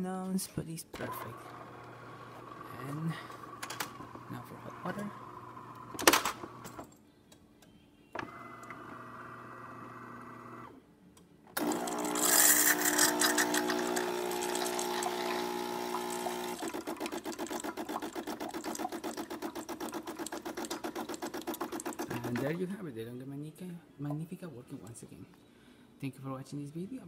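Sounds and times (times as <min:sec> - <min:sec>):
vibration pump buzzing: 0:11.6 - 0:22.6
water hissing into pitcher: 0:11.6 - 0:22.6.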